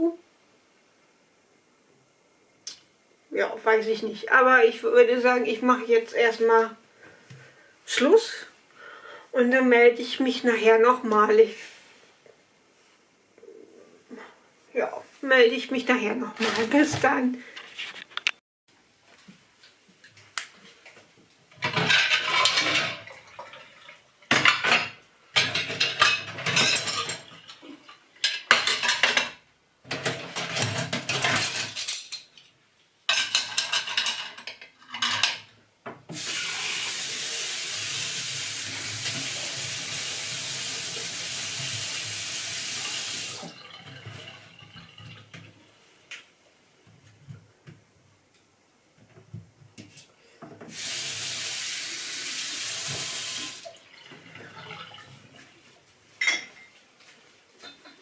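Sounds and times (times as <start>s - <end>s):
dishes clattering in sink: 21.6s - 32.3s, 33.1s - 36.0s, 56.2s - 56.8s, 57.6s - 58.0s.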